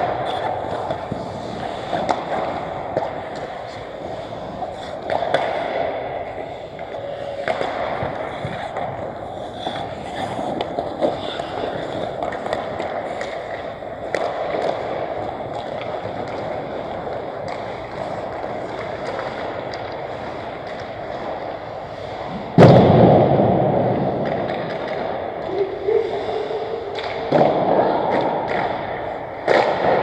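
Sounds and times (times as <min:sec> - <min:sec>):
skate blades scraping ice: 0:00.0 - 0:22.6
hockey sticks clacking: 0:00.0 - 0:30.0.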